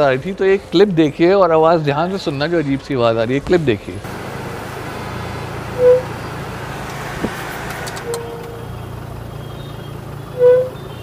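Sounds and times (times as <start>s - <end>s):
road and engine noise: 0.0s - 11.0s
car brakes squeaking: 4.1s - 11.0s.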